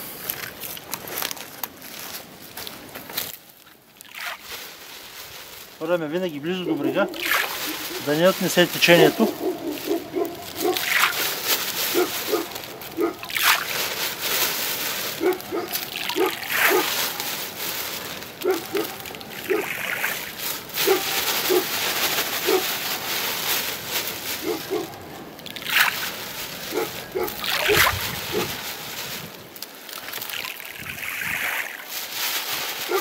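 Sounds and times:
grains plopping in water: 0:04.0 - 0:04.4, 0:07.1 - 0:07.6, 0:10.5 - 0:11.2, 0:13.1 - 0:14.2, 0:15.7 - 0:16.9, 0:25.4 - 0:26.1, 0:27.3 - 0:28.1, 0:29.8 - 0:31.9.

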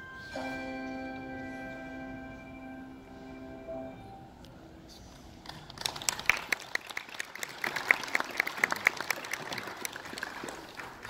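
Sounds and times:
small audience applauding: 0:05.4 - 0:11.0.

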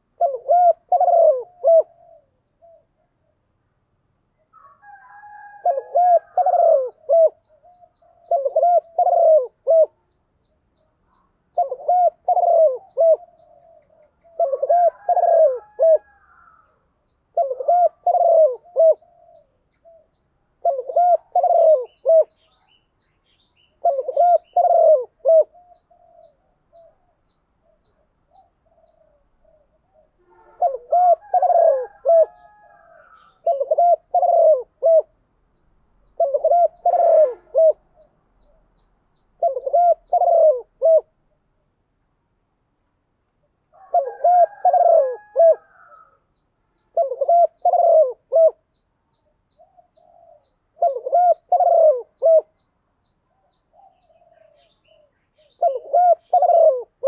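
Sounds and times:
dove cooing: 0:00.0 - 0:03.5, 0:04.6 - 0:10.2, 0:11.5 - 0:22.8, 0:23.6 - 0:35.2, 0:36.0 - 0:38.8, 0:39.4 - 0:41.2, 0:43.7 - 0:52.6, 0:53.3 - 0:57.0.

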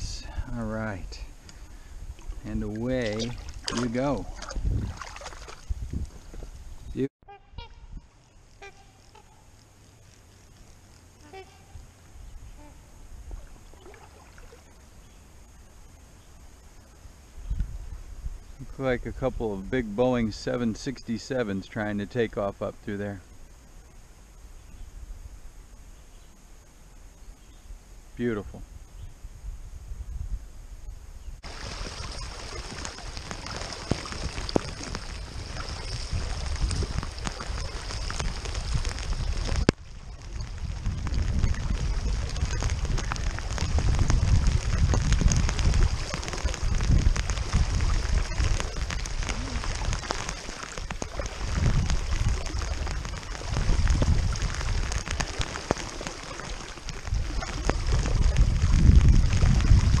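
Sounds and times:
heavy rain on river: 0:01.3 - 0:06.2, 0:31.4 - 1:00.0
water splashing around kicking fins: 0:02.2 - 0:06.1, 0:13.3 - 0:14.8, 0:31.4 - 1:00.0.

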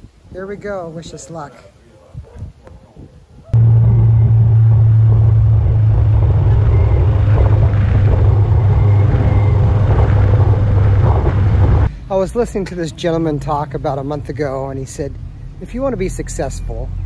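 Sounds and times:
motorcycle engine drone: 0:03.6 - 0:12.0.

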